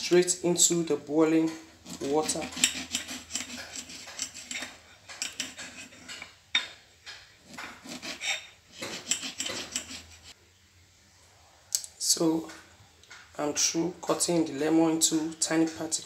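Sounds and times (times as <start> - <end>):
knife tapping and scraping on plate: 1.4 - 10.2.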